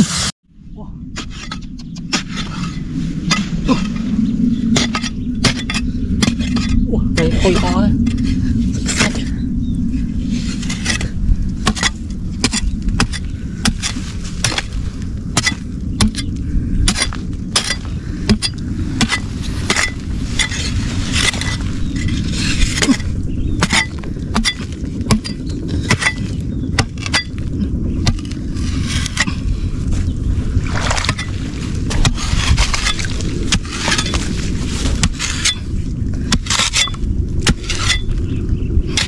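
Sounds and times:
steady low rumble: 0.0 - 39.0.

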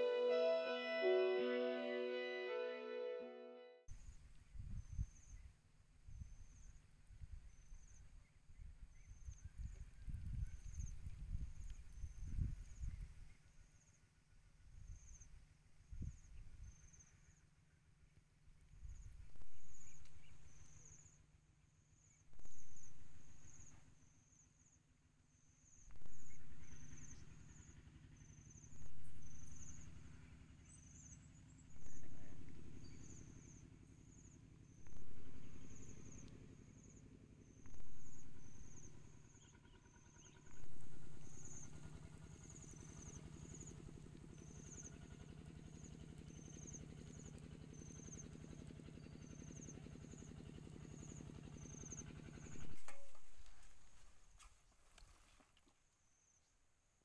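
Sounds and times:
low pulsing sound: 0.0 - 3.8, 31.7 - 33.8, 34.8 - 54.0.

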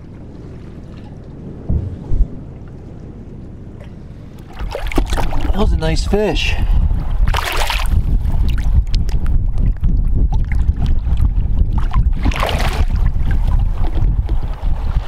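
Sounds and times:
wind buffeting microphone: 0.0 - 15.0
fish splashing in water: 4.4 - 5.6, 7.2 - 8.0, 11.9 - 13.2.

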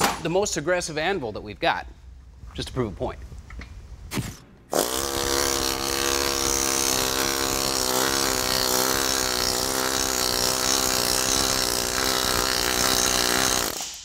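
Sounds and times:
pneumatic hammer pounding sheet metal: 4.7 - 14.0.

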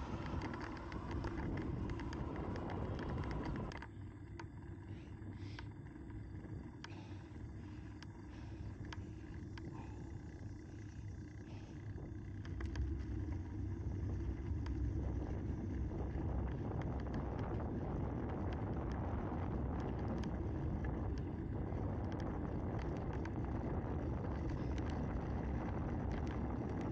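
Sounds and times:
wind on microphone: 0.0 - 3.7
small clicks and rattles: 0.0 - 26.9
tyres rumbling on rough asphalt: 0.0 - 26.9.

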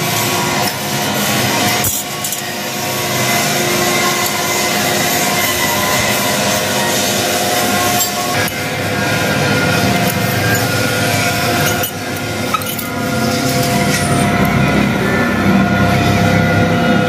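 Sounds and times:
loud droning hum: 0.0 - 17.0
chain links clinking: 11.6 - 14.2.

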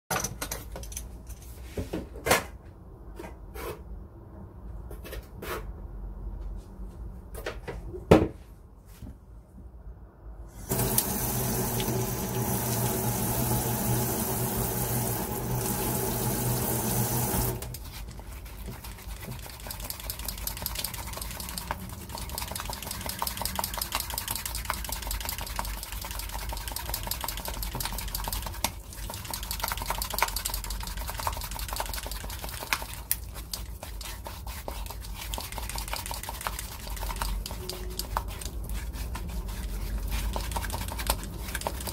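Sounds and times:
metal spatula mixing in bowl: 17.7 - 41.9.

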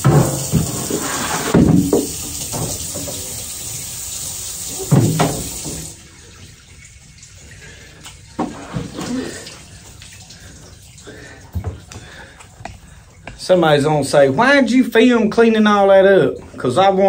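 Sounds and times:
faucet water splashing into sink: 0.0 - 13.4.

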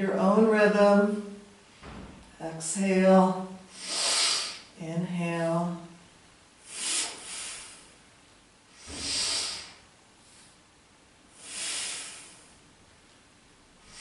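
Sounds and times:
woman breathing forcefully: 3.6 - 4.8, 6.6 - 8.1, 8.7 - 10.7, 11.3 - 12.8, 13.8 - 14.0.

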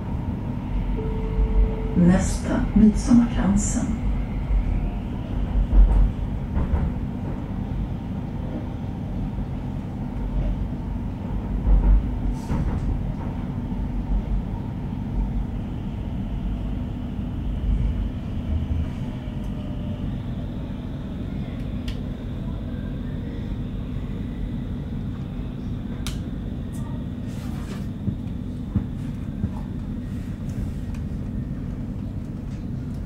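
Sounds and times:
train wheels rumbling on rails: 0.0 - 33.0
faint high whine: 0.9 - 5.0.

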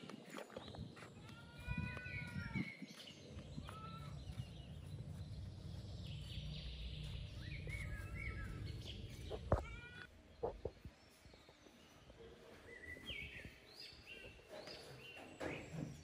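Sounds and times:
high chirping animal calls: 1.3 - 10.8.

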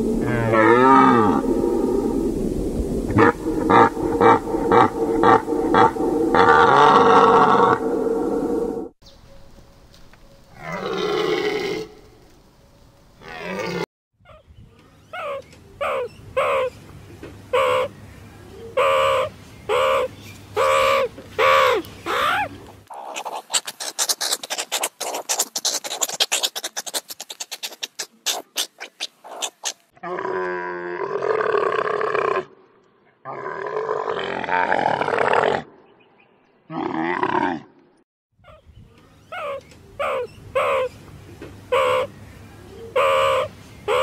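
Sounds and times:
camel groaning grunts: 3.2 - 7.9
meerkat calling and chattering: 15.1 - 16.8, 17.5 - 17.9, 18.8 - 29.9, 39.3 - 41.0, 41.7 - 42.1, 42.9 - 44.0.

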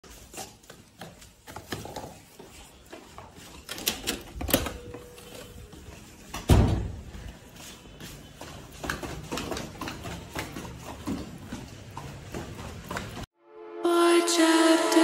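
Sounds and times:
footsteps in rubber clogs: 0.0 - 13.3
heavy door thump: 6.5 - 7.0.

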